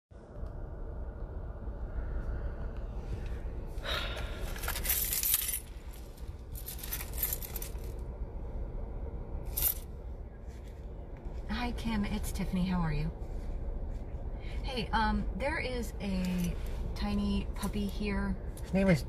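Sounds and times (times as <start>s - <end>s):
rustling clinking handling noise: 4.5s - 8.0s, 9.5s - 9.9s.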